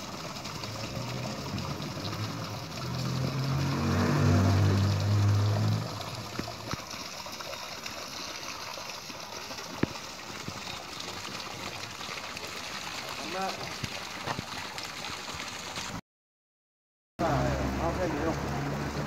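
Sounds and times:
water trickling: 0:00.0 - 0:16.0, 0:17.2 - 0:19.0
low motor hum: 0:00.6 - 0:06.8.

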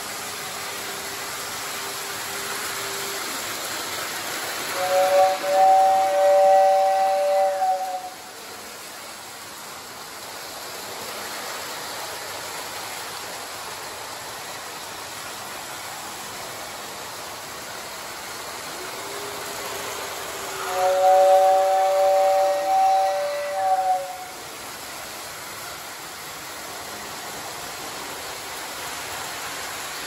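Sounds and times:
model trains running on track: 0:00.0 - 0:30.0
two-note steam whistle: 0:00.1 - 0:03.7, 0:04.6 - 0:08.7, 0:17.5 - 0:24.6.

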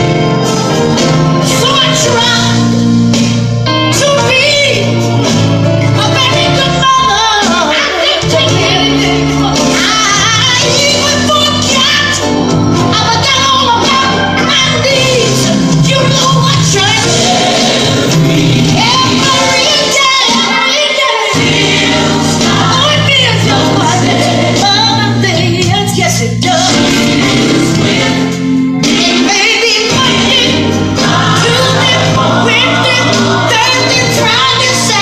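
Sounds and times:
gospel choir singing: 0:00.0 - 0:35.0
steady bass line: 0:08.2 - 0:20.2, 0:21.4 - 0:35.0.

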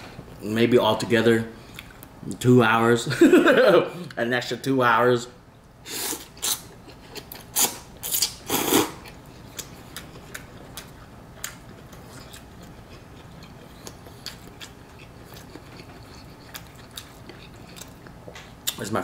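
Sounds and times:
chewing with faint clicks: 0:01.7 - 0:02.1, 0:09.0 - 0:18.9
person slurping noodles: 0:07.6 - 0:09.0.

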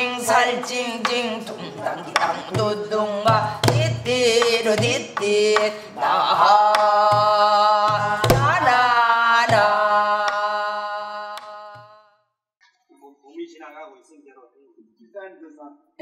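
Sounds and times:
woman singing wordlessly: 0:00.0 - 0:12.2.

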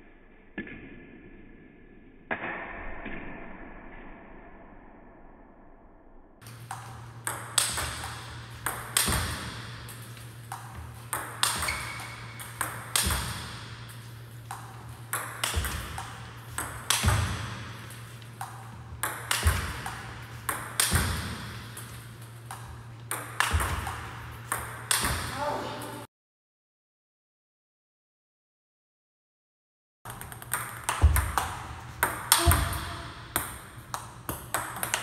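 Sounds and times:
steady low hum: 0:06.4 - 0:26.1.

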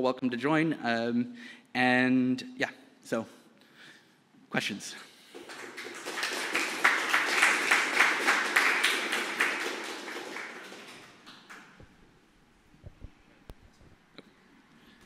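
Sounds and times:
audience applauding: 0:05.3 - 0:12.0.

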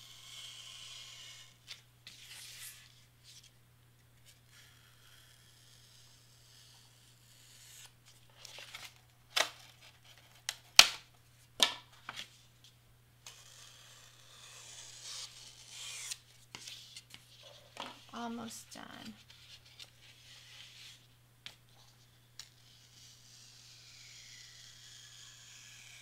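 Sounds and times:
craft knife cutting cardstock: 0:13.3 - 0:17.1.

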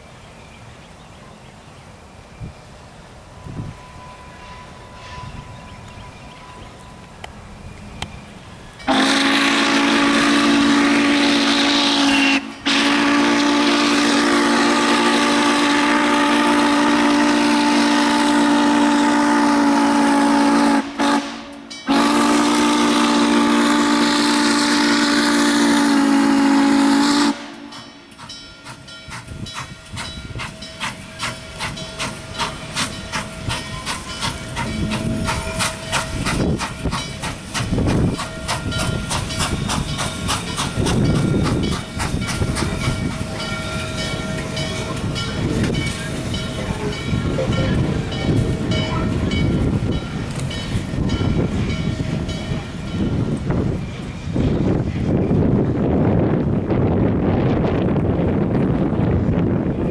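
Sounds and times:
locomotive exhaust beats: 0:07.0 - 0:59.9
steam locomotive whistle blasts: 0:08.8 - 0:27.9.

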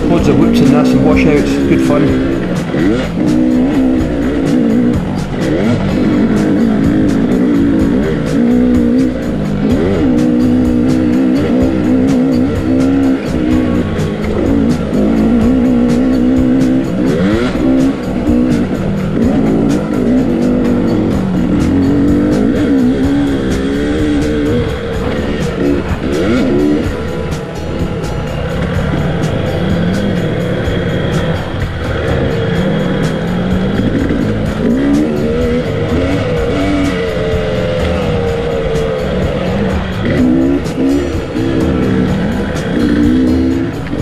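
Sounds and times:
motorcycle engine revving: 0:00.0 - 0:44.0
music playing: 0:00.0 - 0:44.0.

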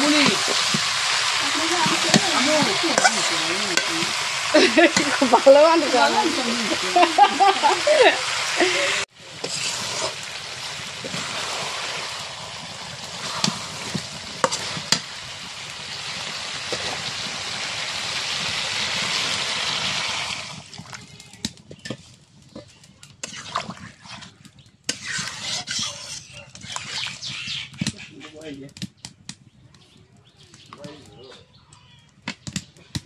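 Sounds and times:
curry sizzling in a pot: 0:00.0 - 0:28.2
metal spatula scraping and clinking: 0:01.8 - 0:04.1, 0:24.9 - 0:27.2.

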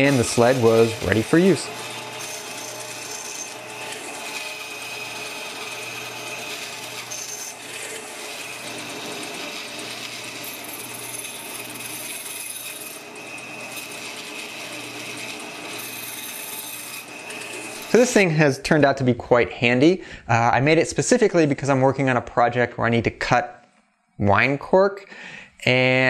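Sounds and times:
band saw cutting cork: 0:00.0 - 0:18.2.

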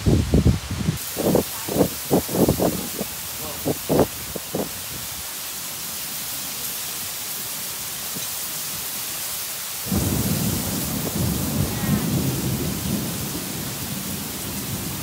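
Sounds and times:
heavy rain hissing: 0:00.0 - 0:15.0
low rumble of thunder: 0:09.9 - 0:15.0.

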